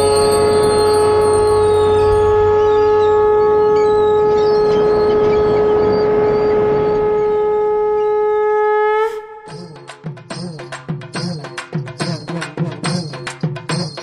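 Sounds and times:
conch shell blown: 0.0s - 10.6s.

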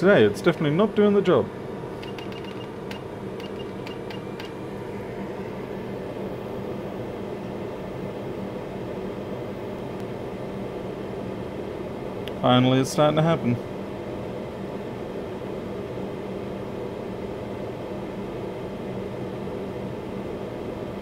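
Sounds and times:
hot-air station blowing: 1.2s - 9.8s.

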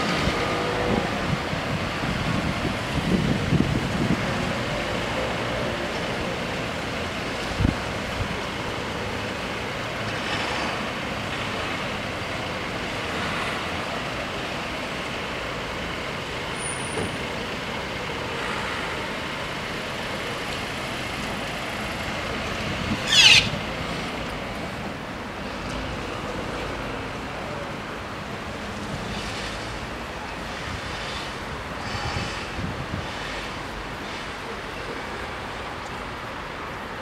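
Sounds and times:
road traffic: 0.0s - 37.0s
high rising squeal: 23.0s - 23.6s.

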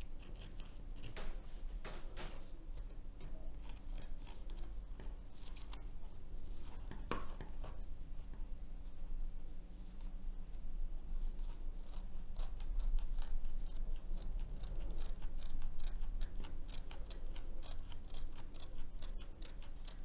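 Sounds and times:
scissors snipping canvas: 11.4s - 20.0s.

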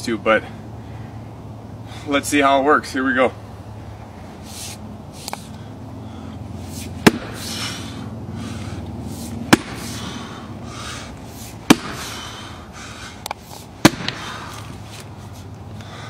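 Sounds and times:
axe chopping into log: 7.0s - 7.6s, 9.5s - 10.0s, 11.6s - 12.3s, 13.8s - 14.4s.

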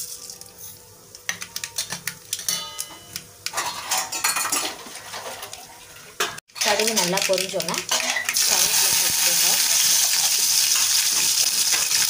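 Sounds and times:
seeds crackling and popping in oil: 6.6s - 12.0s.

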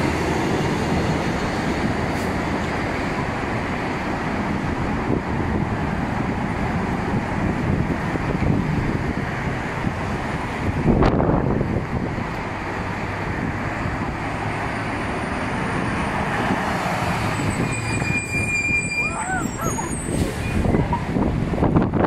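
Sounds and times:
busy road traffic: 0.0s - 22.0s
heavy truck passing: 0.0s - 22.0s.

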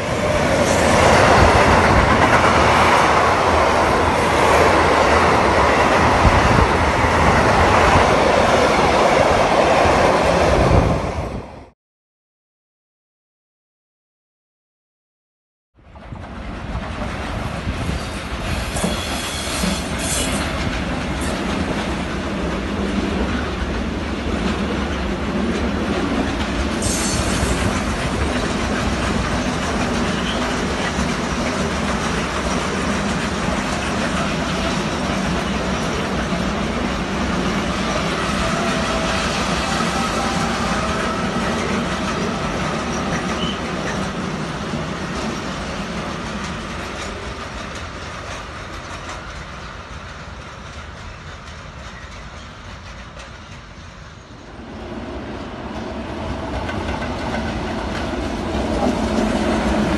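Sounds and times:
train wheels rumbling on rails: 0.0s - 11.5s, 15.8s - 59.9s
high wheel squeal: 18.0s - 20.4s, 37.8s - 44.0s.

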